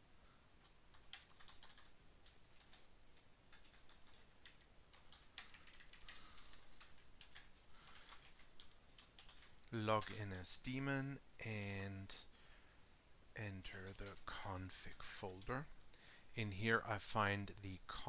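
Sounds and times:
faint keyboard typing: 0.6 - 10.4, 13.7 - 16.0.

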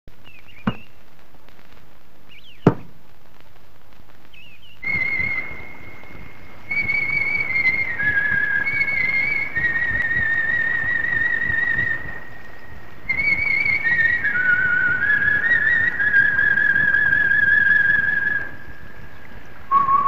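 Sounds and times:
sharp thumps: 0.6 - 0.9, 2.6 - 3.0
high whistle-like melody: 4.8 - 18.6, 19.7 - 20.0.

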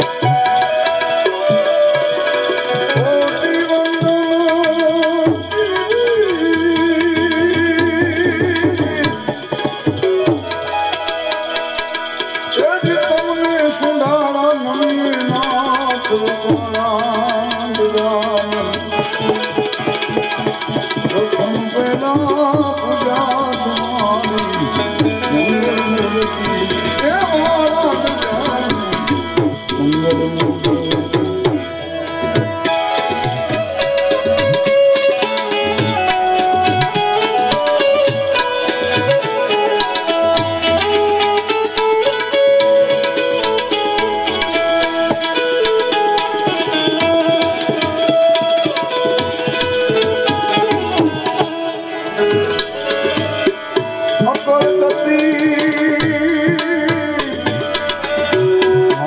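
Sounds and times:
harmonium: 0.0 - 59.0
man singing: 2.6 - 10.2, 12.5 - 32.3, 54.2 - 59.0.

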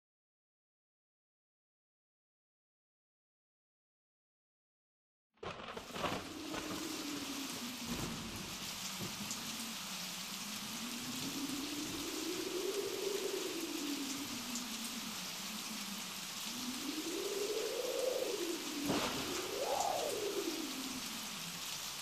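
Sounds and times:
rain-like hiss: 5.4 - 22.0
low howling tone: 5.9 - 21.9.

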